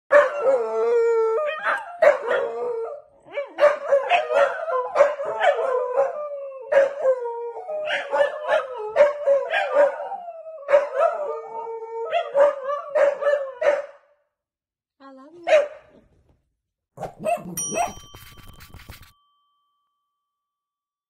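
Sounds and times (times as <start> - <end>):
dogs barking and yipping: 0.1 - 0.6, 1.4 - 7.1, 7.8 - 11.4, 12.1 - 13.9, 17.0 - 19.1
dogs howling: 0.1 - 13.9.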